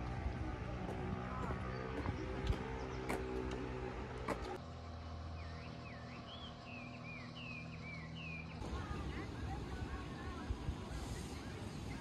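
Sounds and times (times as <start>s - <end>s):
bird whistling song: 5.4s - 8.6s.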